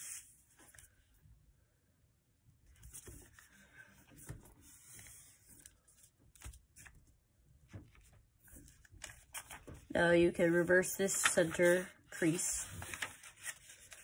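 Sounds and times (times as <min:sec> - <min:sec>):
paper rustling and crinkling: 0:02.7 - 0:09.9, 0:10.8 - 0:14.0.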